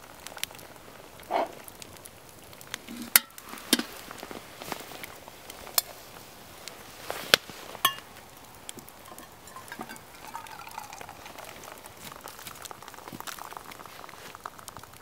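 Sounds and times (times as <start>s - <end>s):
metal pot knocking on log: 9.1s - 11.4s.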